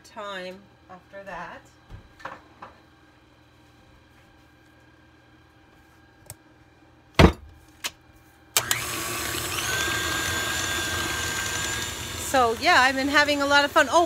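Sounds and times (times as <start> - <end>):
electric stand mixer running: 8.6 - 14.0.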